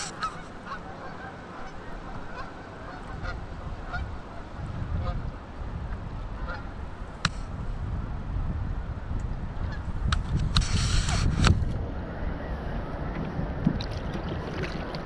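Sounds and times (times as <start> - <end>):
geese honking: 0.0 - 5.2, 6.4 - 6.8.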